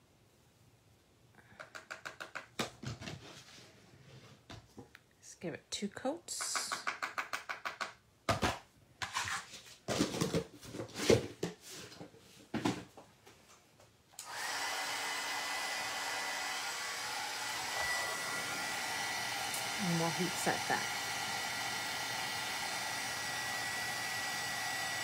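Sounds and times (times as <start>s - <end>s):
heat tool blowing and whining: 14.2s - 25.0s.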